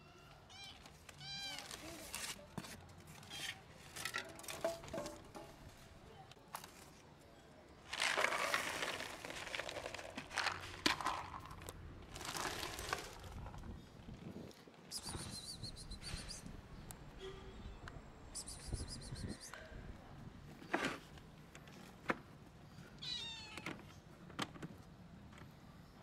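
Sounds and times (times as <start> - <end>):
kibble pouring onto plate: 7.9 - 13.4.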